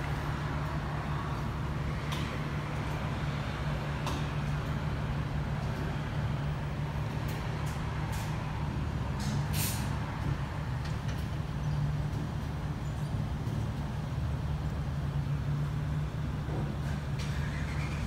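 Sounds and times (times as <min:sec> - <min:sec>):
short hisses: 0:09.5 - 0:09.9.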